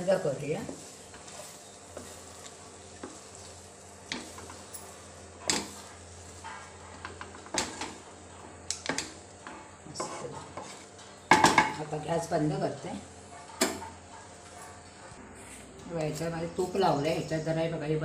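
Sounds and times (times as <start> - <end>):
spatula scraping and knocking pan: 0.1 - 11.8.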